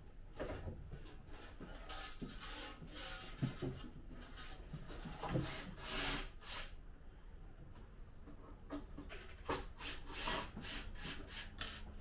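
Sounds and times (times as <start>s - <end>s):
scraping and rubbing: 1.4s - 5.2s.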